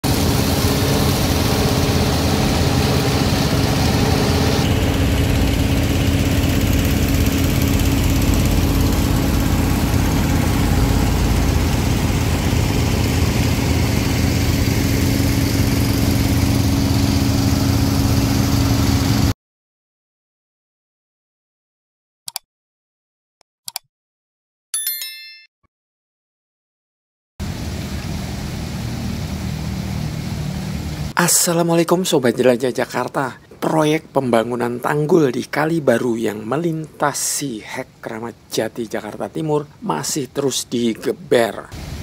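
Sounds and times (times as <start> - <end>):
small petrol pump engine running: 0.0 - 19.3
water gushing from hose: 0.0 - 19.3, 41.7 - 42.0.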